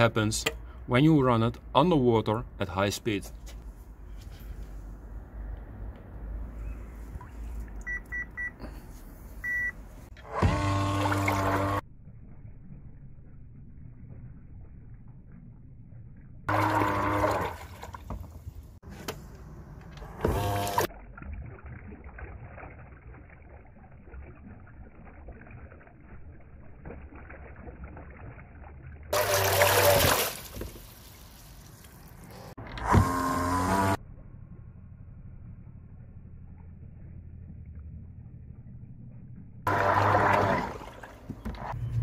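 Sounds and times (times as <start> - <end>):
water churning and splashing: 9.4 - 11.8, 16.5 - 18.9, 20.1 - 32.6, 39.7 - 42.0
electric motor whine: 10.2 - 11.8, 32.8 - 34.0.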